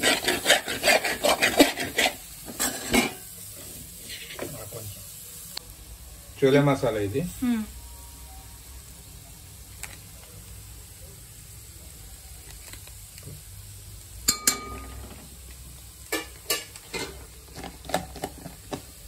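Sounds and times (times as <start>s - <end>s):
spoon scraping in pot: 0.0s - 4.5s
vegetables sizzling in a pot: 0.0s - 19.0s
spoon knocking on metal pot: 14.3s - 15.0s.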